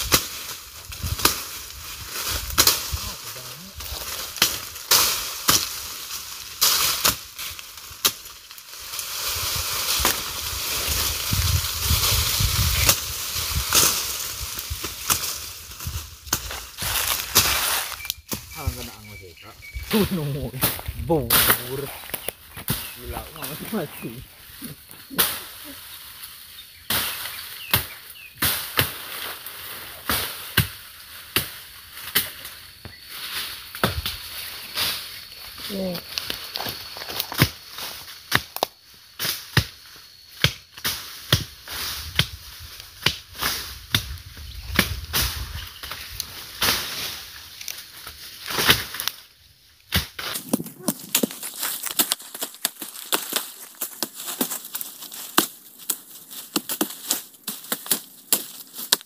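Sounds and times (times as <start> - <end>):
fire hissing: 0.0 - 40.0
brush fire crackling and popping: 0.0 - 59.0.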